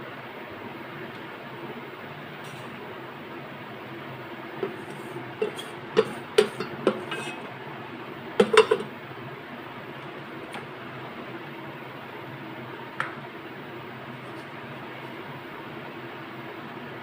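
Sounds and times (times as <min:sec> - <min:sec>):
steady background hum: 0:00.0 - 0:17.0
wooden spatula scraping metal pot: 0:04.6 - 0:07.5.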